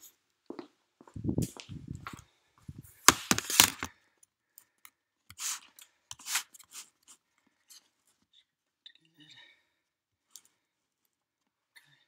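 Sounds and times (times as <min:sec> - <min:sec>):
laptop being handled: 0:03.0 - 0:03.9.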